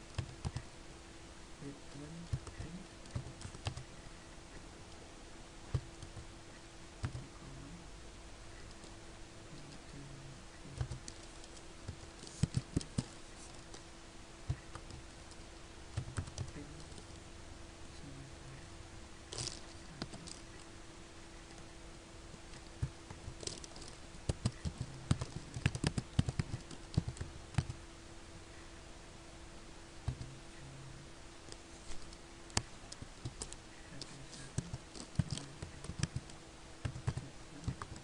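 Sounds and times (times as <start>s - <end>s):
faint steady hum: 0.0s - 38.0s
typing on computer keyboard: 0.1s - 0.7s, 2.3s - 3.9s, 7.0s - 7.2s, 10.8s - 13.1s, 16.0s - 17.1s, 22.6s - 27.8s, 34.6s - 38.0s.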